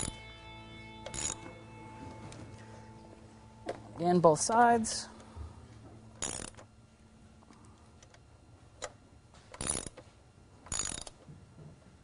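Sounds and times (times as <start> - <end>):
ratchet wrench clicking: 1.0 - 1.4, 6.2 - 6.6, 9.6 - 10.0, 10.7 - 11.2.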